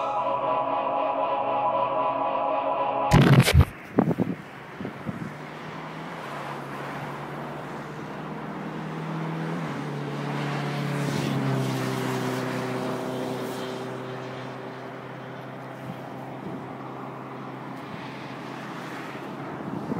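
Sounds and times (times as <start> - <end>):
steady roar: 0.0 - 3.7
engine drone: 0.0 - 4.6.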